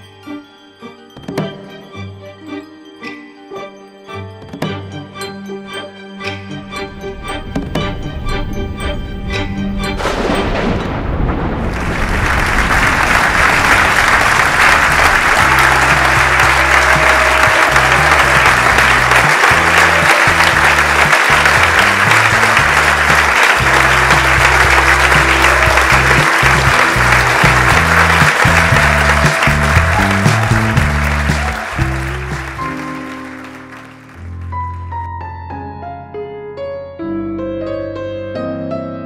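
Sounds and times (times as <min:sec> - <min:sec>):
audience clapping: 0:11.6 - 0:35.1
background music with bass line: 0:14.0 - 0:33.2.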